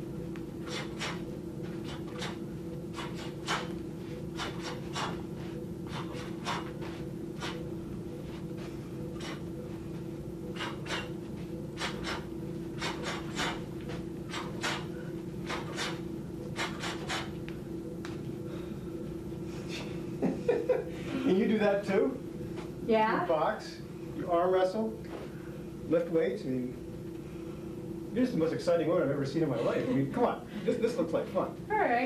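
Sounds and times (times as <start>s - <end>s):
steady low hum: 0.0s - 32.0s
movement sounds: 0.1s - 20.2s
woman breathing sharply: 11.8s - 13.7s, 18.4s - 20.0s.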